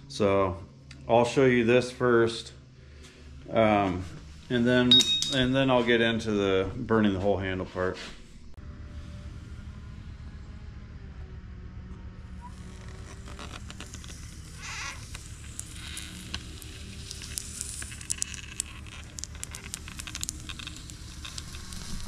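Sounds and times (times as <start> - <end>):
wood sizzling and crackling: 12.3 - 22.0.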